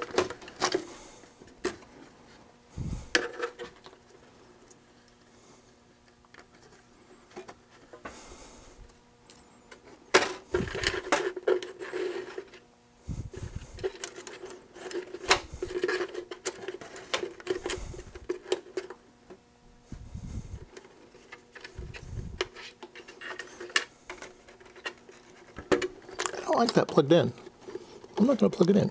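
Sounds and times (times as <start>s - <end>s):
wires rustling: 6.0s - 28.9s.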